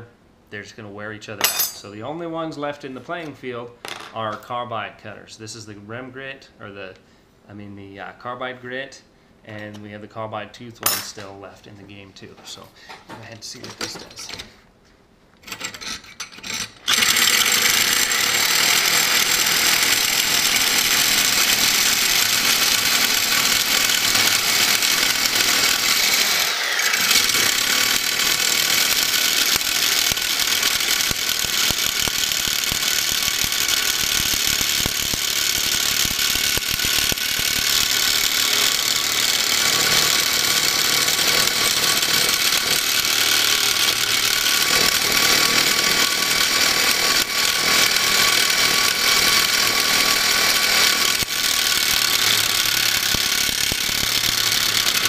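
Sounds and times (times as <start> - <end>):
reciprocating saw grinding steel: 15.4 - 55.0.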